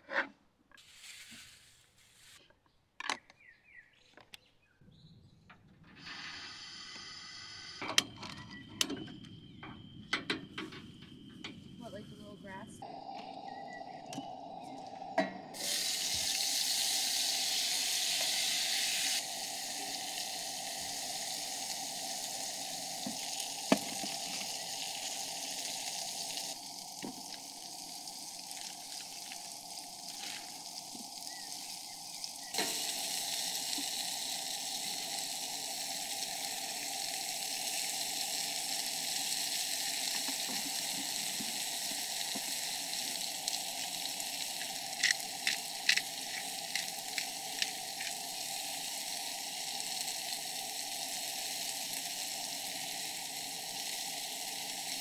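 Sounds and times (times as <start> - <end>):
food sizzling in frying pan: 15.5 - 55.0.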